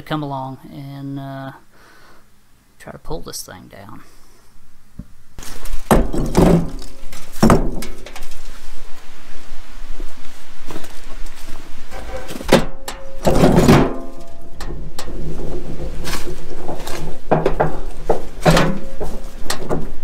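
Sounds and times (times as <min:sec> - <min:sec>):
rubble clattering: 0:05.4 - 0:08.7, 0:12.0 - 0:20.0
concrete thunking into wheelbarrow: 0:05.8 - 0:08.4, 0:12.3 - 0:20.0.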